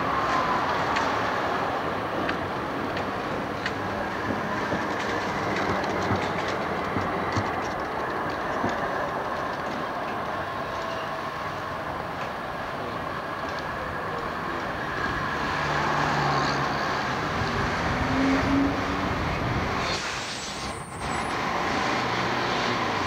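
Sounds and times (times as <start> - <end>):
tram running noise: 0.0 - 23.0
tram wheels clicking over rail joints: 0.2 - 15.2.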